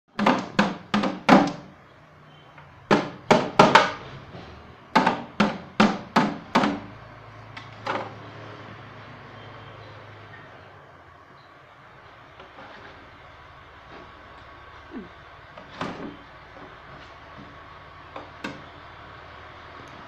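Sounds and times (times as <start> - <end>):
stick knocking plastic containers: 0.1 - 1.8, 2.9 - 4.1, 4.9 - 7.0, 7.6 - 8.2
low steady hum: 1.3 - 20.0.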